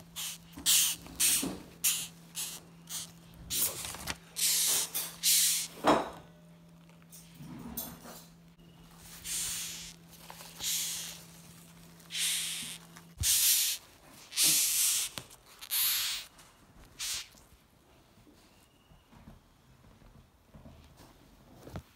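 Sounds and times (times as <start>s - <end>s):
beetles hissing: 0.0s - 5.8s, 9.0s - 11.4s, 12.0s - 16.3s, 17.0s - 17.4s.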